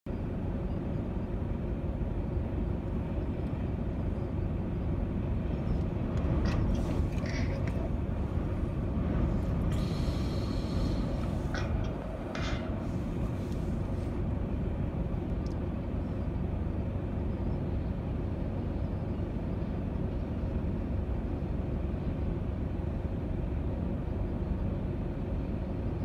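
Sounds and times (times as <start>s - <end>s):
wind buffeting microphone: 1.0s - 17.3s.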